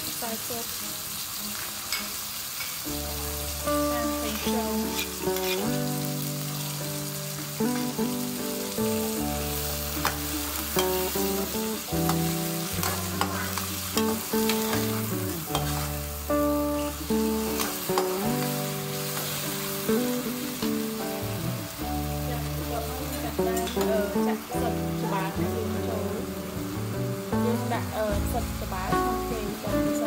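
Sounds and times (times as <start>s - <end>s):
beef sizzling in a wok: 0.0s - 30.0s
soft background music: 0.0s - 30.0s
spatula scraping a pan: 4.4s - 5.9s, 10.0s - 16.2s.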